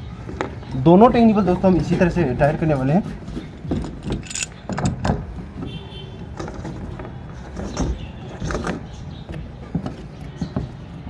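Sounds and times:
plastic fittings knocking and scraping: 0:03.0 - 0:11.0.

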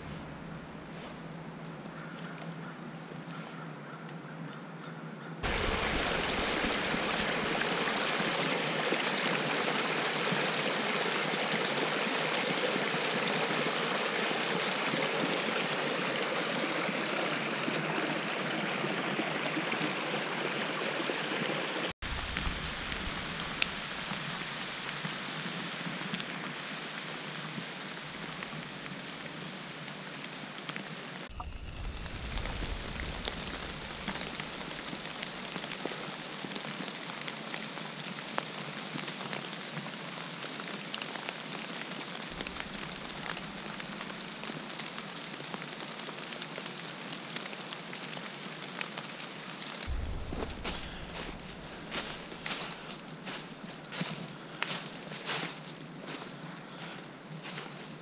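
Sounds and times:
rain hissing: 0:00.0 - 0:01.3, 0:05.4 - 0:55.6
stream running water: 0:05.4 - 0:58.0.

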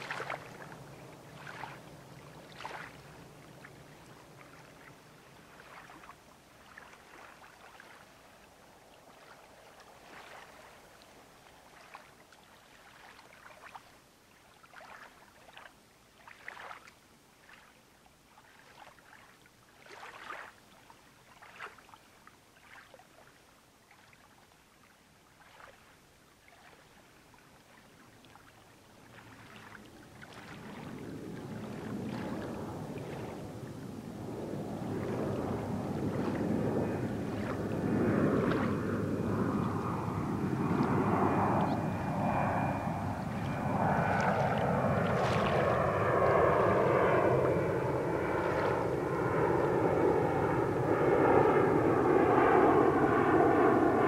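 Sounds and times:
jet airliner rumble: 0:00.0 - 0:05.4, 0:29.8 - 0:54.0
small waves lapping: 0:00.0 - 0:50.8.

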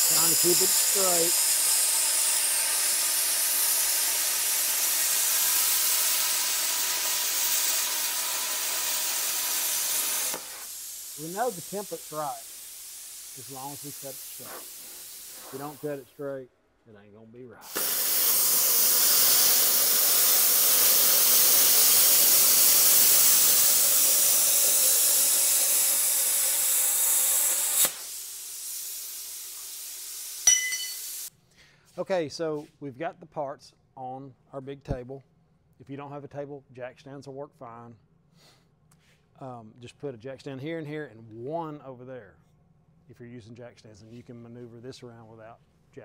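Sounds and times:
cutting torch hissing: 0:00.0 - 0:16.3, 0:17.6 - 0:31.3.

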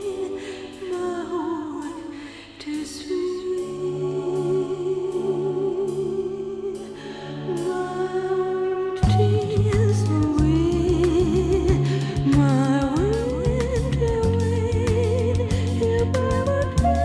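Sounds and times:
person singing with vibrato: 0:00.0 - 0:17.0
soft sustained accompaniment: 0:00.0 - 0:17.0.

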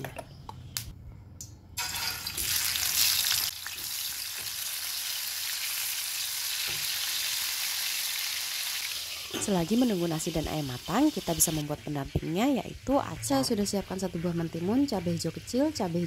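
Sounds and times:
chicken sizzling in hot oil: 0:01.8 - 0:16.0.

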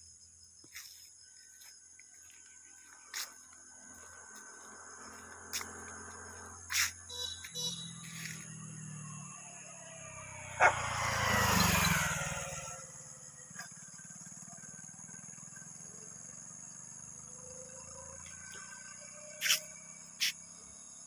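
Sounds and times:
insects chirping: 0:00.0 - 0:21.0
motorcycle passing: 0:02.2 - 0:21.0
dog bark: 0:10.6 - 0:10.9.

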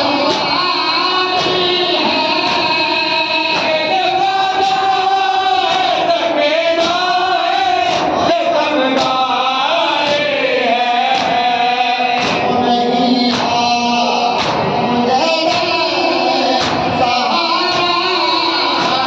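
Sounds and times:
crowd chanting: 0:00.0 - 0:19.0
men chanting a lament: 0:00.0 - 0:19.0
chest-beating slaps: 0:07.8 - 0:08.2, 0:10.0 - 0:10.4, 0:11.1 - 0:11.4, 0:12.2 - 0:12.6, 0:13.3 - 0:13.6, 0:14.3 - 0:14.9, 0:16.6 - 0:17.0.

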